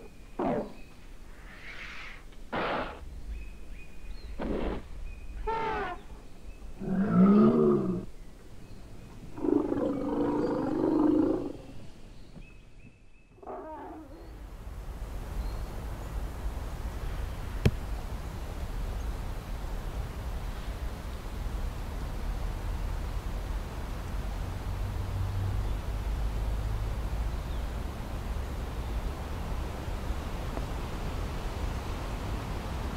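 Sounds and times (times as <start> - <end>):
outdoor background hiss: 0.0 - 32.9
elephants calling: 5.4 - 6.0.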